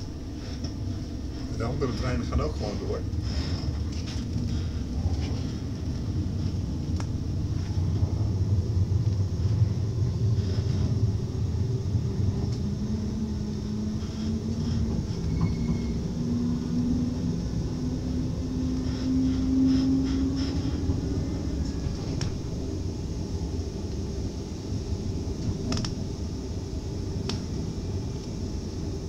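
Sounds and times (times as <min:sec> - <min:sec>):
train wheels rumbling on track: 0:00.0 - 0:29.0.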